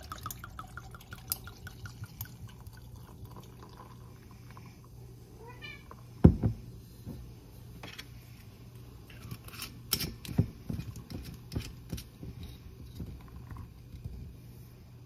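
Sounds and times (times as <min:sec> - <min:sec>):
cat meowing: 0:05.4 - 0:05.9.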